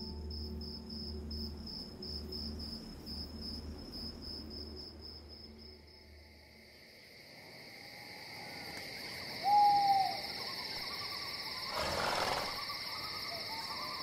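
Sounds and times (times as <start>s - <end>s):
crickets chirping: 0.0s - 14.0s
owl hoot: 9.4s - 10.5s.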